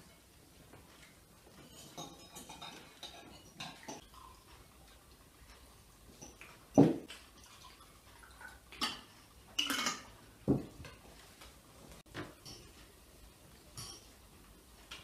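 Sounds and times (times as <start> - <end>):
tableware knocking and clinking: 1.6 - 4.0, 6.2 - 7.1, 8.8 - 11.0, 12.2 - 12.8, 13.8 - 14.2.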